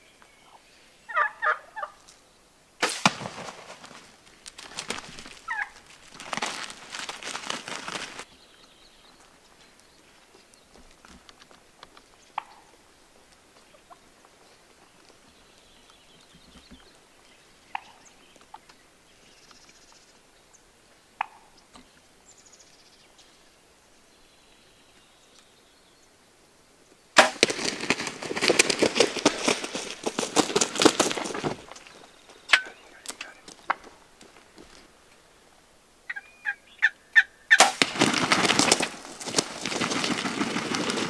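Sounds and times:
short sharp turkey calls: 0.4 - 2.1, 5.4 - 5.8, 12.3 - 12.8, 17.7 - 18.2, 21.2 - 21.6, 32.5 - 33.8, 36.1 - 37.8
turkey wingbeats: 0.5 - 2.2, 2.8 - 8.3, 10.2 - 15.2, 27.2 - 35.0, 36.1 - 41.0.

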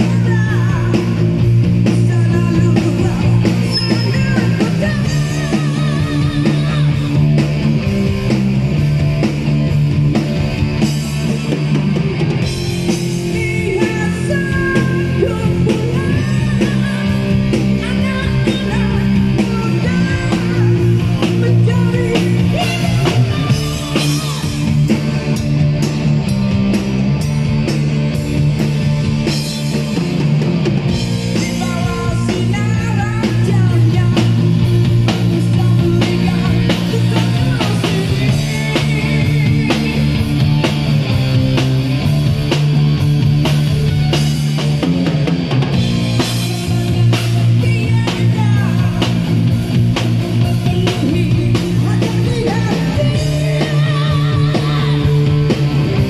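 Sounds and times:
rock band playing live: 0.0 - 56.0.

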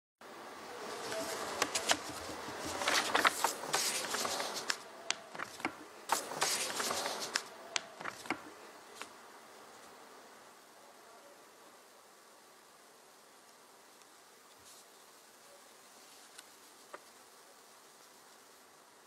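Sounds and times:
steady hiss: 0.2 - 19.0
rustling: 0.8 - 9.2, 14.4 - 18.7
sharp clicks: 1.2 - 9.1.

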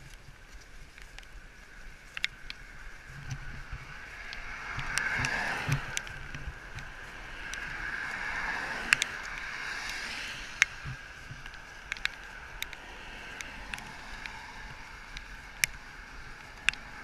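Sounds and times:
sharp ticks: 0.0 - 17.0
tyres hissing on wet road: 3.7 - 17.0.

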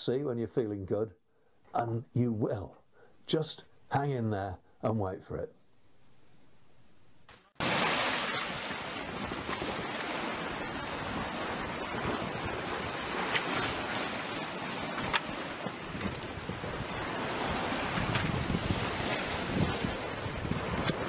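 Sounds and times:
water washing along hull: 7.6 - 21.0
wind rushing: 8.9 - 20.9.

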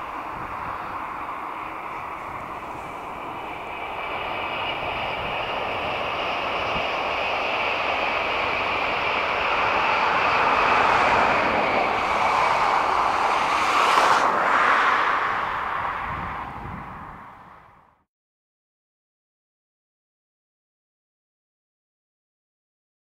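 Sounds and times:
high speed train rushing past: 0.0 - 18.0.

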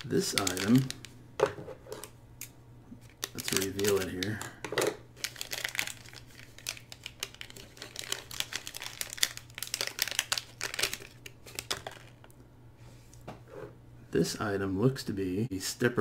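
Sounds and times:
plastic bag crinkling: 0.0 - 1.1, 3.1 - 4.6, 5.2 - 12.3.

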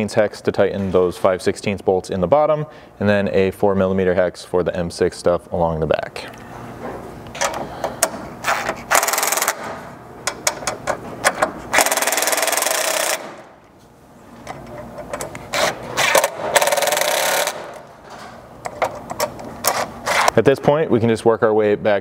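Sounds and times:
impact driver hammering bolts: 15.6 - 17.8.

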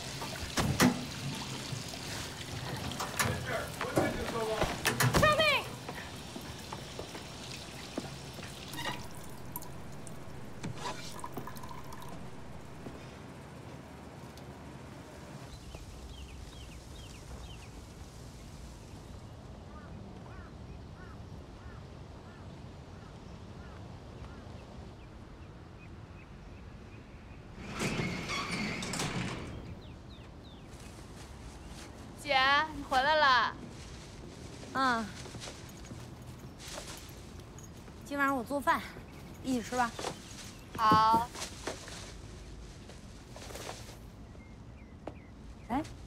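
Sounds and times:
water dripping: 0.0 - 13.0
metal gate rattling scrape: 7.7 - 13.0, 27.6 - 29.8
high squeal of gate: 8.6 - 9.5, 27.6 - 29.7.

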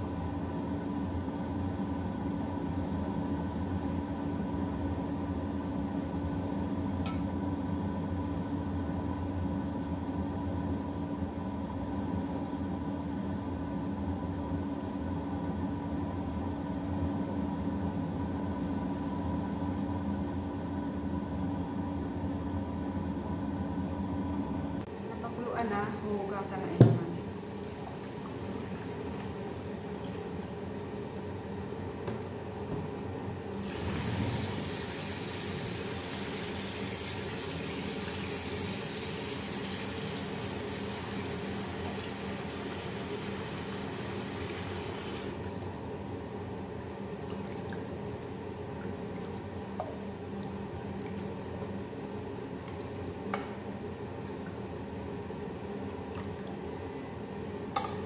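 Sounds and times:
water pouring and sloshing: 27.0 - 31.4, 47.2 - 51.8, 52.6 - 53.4, 54.1 - 56.6.

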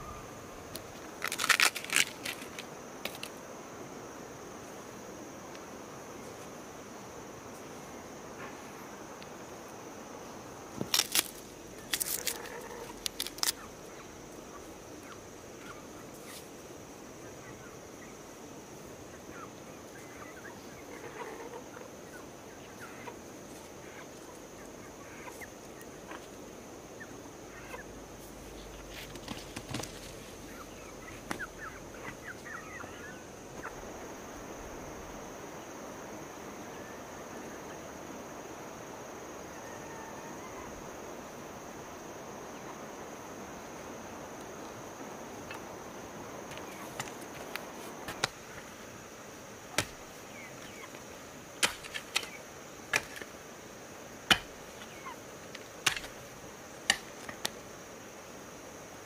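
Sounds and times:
background hiss: 0.0 - 59.0
poultry calling: 12.1 - 14.0, 19.3 - 23.2, 30.4 - 33.7.

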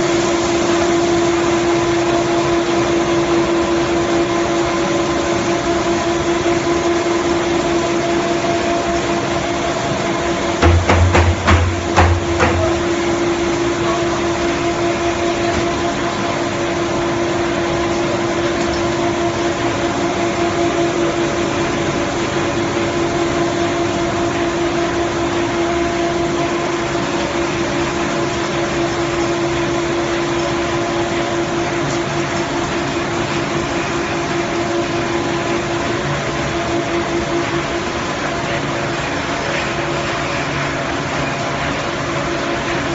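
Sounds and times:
machinery motor hum: 0.0 - 28.4.

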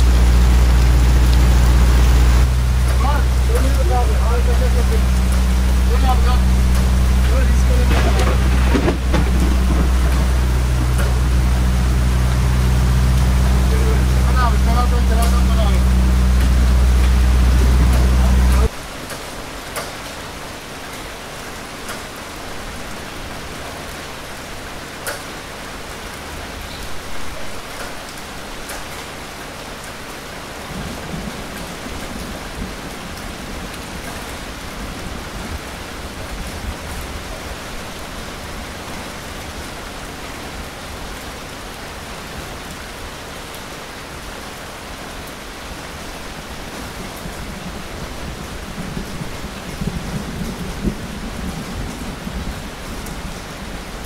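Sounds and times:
low rumbling: 0.0 - 18.8
steady rain: 0.0 - 54.0
sharp drip-like taps: 2.6 - 11.4, 14.0 - 15.6.

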